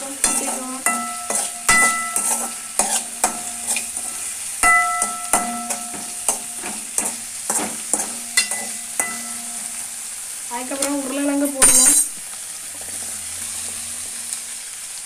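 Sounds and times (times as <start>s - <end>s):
food sizzling in oil: 0.0s - 15.0s
spatula knocking a pan: 0.2s - 9.8s.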